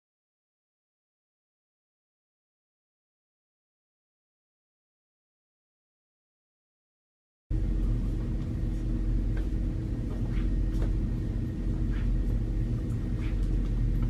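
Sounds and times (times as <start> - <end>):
low hum: 7.5 - 14.0
low rumble: 7.5 - 14.0
footsteps on hard floor: 8.7 - 11.1.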